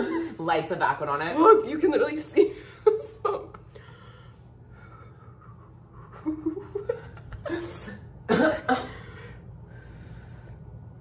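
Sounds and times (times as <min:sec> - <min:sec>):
woman coughing: 0:07.5 - 0:09.1.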